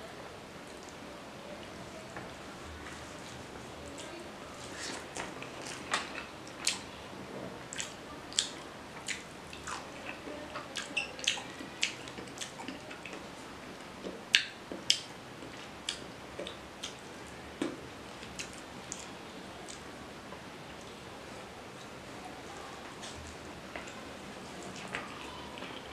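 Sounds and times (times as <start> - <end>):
mouth chewing wetly: 7.7 - 13.3.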